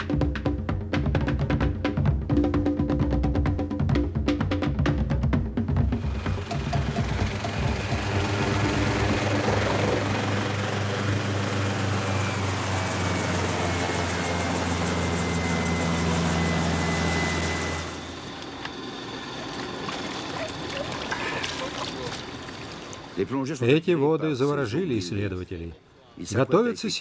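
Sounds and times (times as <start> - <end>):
helicopter engine and rotor: 5.8 - 25.2.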